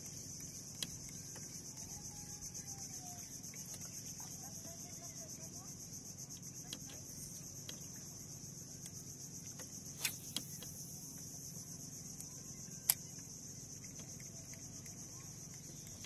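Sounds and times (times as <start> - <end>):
high-pitched insect chorus: 0.0 - 16.0
sharp clicks: 9.6 - 11.0.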